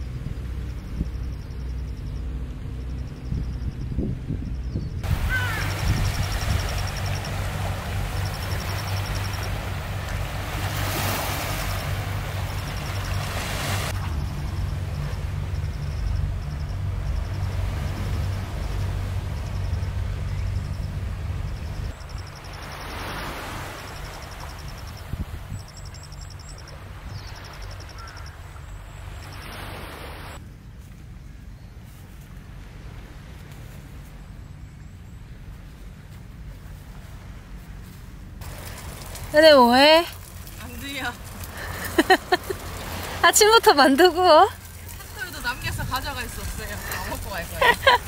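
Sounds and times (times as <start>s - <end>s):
low rumble: 0.0s - 22.4s
wind: 0.0s - 48.0s
surf washing: 5.0s - 30.4s, 36.5s - 48.0s.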